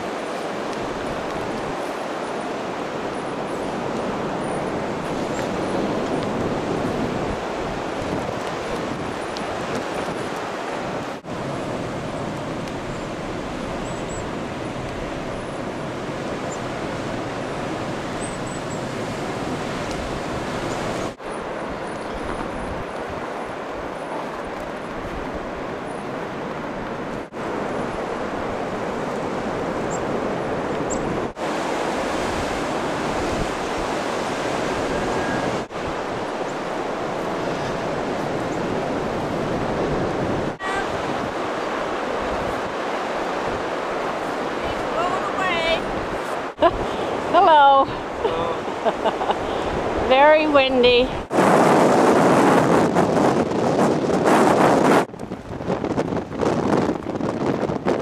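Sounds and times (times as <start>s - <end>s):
blizzard wind blowing: 0.0s - 58.0s
wind buffeting microphone: 0.0s - 58.0s.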